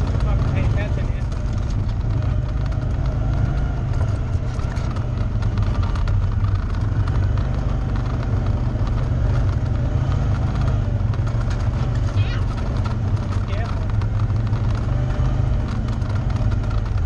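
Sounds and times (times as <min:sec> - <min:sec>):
atv engine running: 0:00.0 - 0:17.0.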